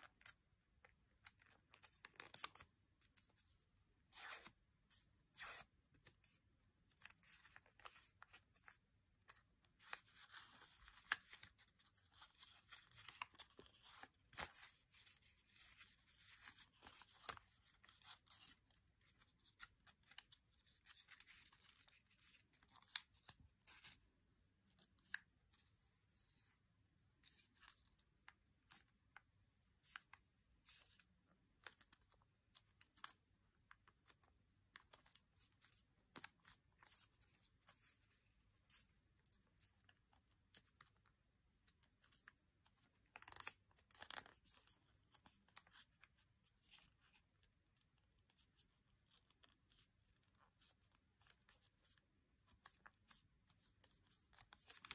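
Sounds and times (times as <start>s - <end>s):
paper rustling and crinkling: 5.3s - 24.0s, 48.2s - 54.9s.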